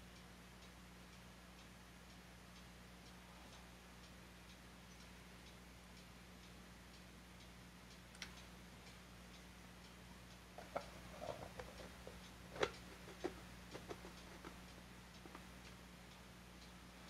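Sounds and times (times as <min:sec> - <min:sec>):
faint regular ticking: 0:00.0 - 0:17.0
low steady hum: 0:00.0 - 0:17.0.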